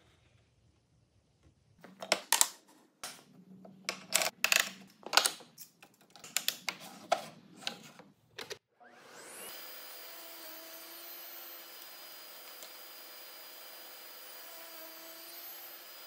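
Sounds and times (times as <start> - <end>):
wooden pieces clicking on metal table: 3.9 - 6.7.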